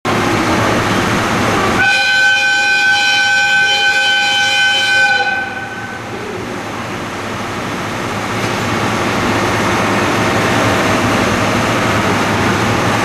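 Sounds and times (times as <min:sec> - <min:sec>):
steady background noise: 0:00.1 - 0:13.0
locomotive whistle blast: 0:01.8 - 0:06.1.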